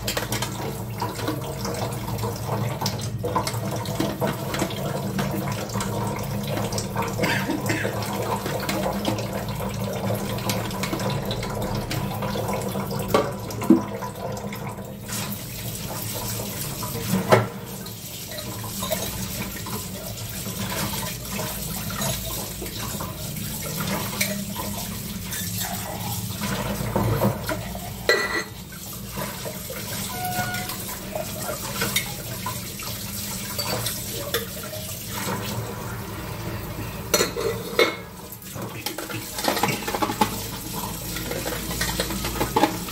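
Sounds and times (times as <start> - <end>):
tap running into sink: 16.8 - 17.7.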